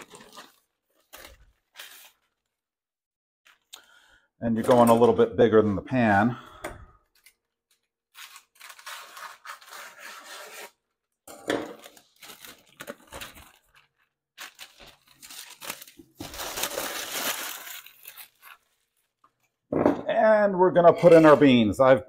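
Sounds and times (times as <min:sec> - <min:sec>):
parchment paper rustling and crinkling: 0:00.0 - 0:02.8, 0:07.0 - 0:10.8, 0:11.8 - 0:19.7.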